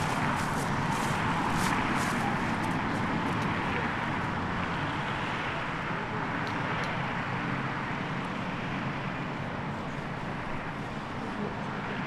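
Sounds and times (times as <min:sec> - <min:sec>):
faint footsteps: 0:00.0 - 0:03.6
road traffic hum: 0:00.0 - 0:12.0.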